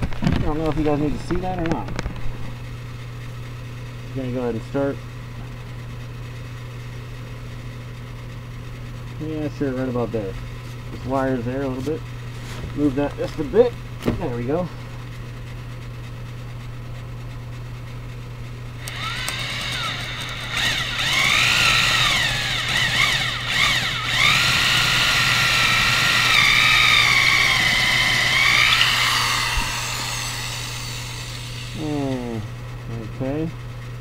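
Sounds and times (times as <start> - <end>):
power drill boring into wood: 18.8 - 32.0.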